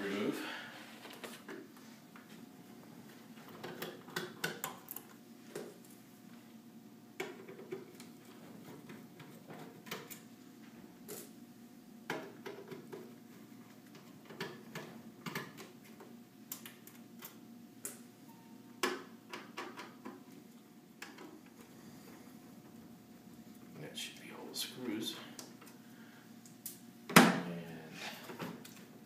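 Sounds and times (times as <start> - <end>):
faint steady hum: 0.0 - 29.0.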